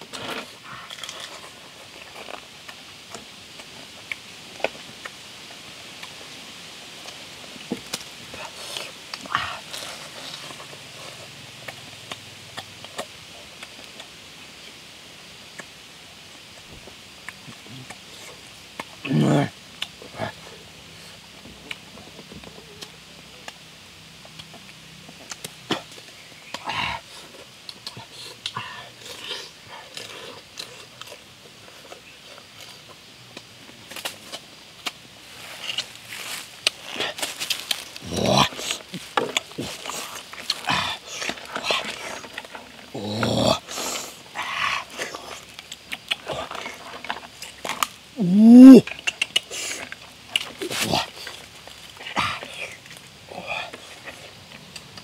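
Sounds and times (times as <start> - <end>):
chewing: 0.0 - 6.3, 7.0 - 14.8, 24.2 - 48.2, 48.8 - 55.0
eating noise: 0.0 - 55.0
low grunt: 38.0 - 39.0, 42.9 - 45.0, 48.2 - 48.9.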